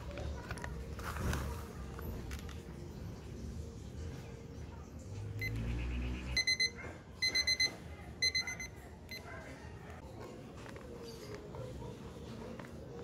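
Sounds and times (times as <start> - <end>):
digital alarm beeping: 5.4 - 9.3.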